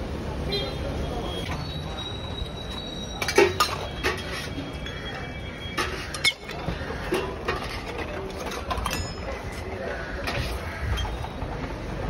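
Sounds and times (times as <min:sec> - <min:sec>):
steady background noise: 0:00.0 - 0:12.0
metal plates and utensils clattering: 0:01.5 - 0:11.5
ringing metal clink: 0:08.6 - 0:09.5.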